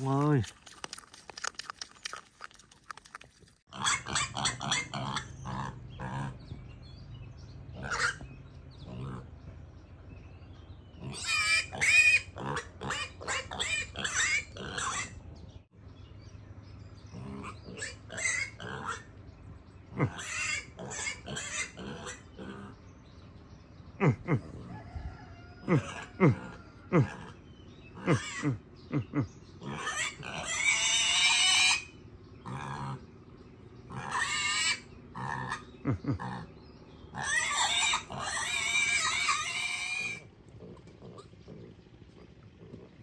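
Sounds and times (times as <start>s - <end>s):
piglet grunting: 0.0s - 6.5s, 7.8s - 8.2s, 11.0s - 15.2s, 19.9s - 22.8s, 24.0s - 24.8s, 25.6s - 33.1s, 33.9s - 43.0s.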